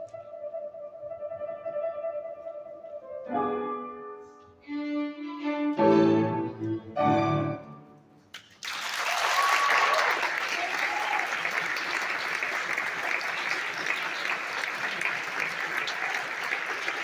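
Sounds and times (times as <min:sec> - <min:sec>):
string ensemble with piano: 0:03.3 - 0:08.1
violin long note: 0:04.6 - 0:07.8.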